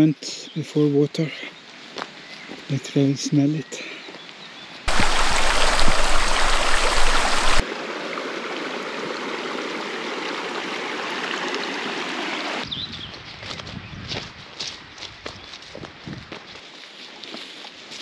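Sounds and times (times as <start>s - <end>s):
stream running over stones: 4.9s - 12.6s.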